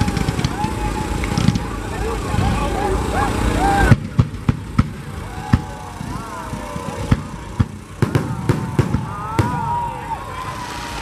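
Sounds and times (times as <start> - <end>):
firework shells bursting: 0.0 - 1.7, 3.9 - 11.0
whistling fireworks: 0.0 - 11.0.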